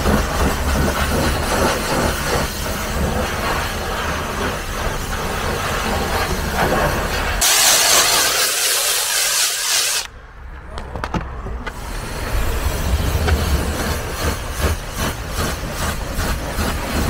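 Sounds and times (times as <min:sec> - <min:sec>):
foam cannon spraying hiss: 0:00.0 - 0:10.1, 0:11.7 - 0:17.0
low rumbling hum: 0:11.4 - 0:17.0.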